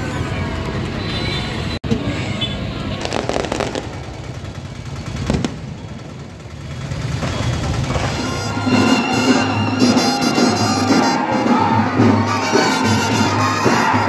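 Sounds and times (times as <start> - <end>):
fireworks crackling: 2.8 - 9.5
fireworks bangs: 2.8 - 10.0.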